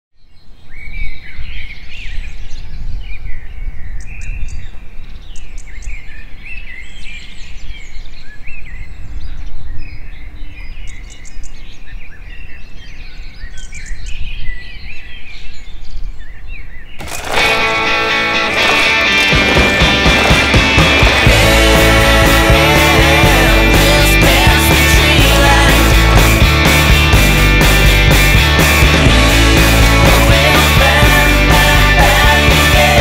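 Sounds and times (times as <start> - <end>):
songbirds singing and calling: 0.2 - 18.8.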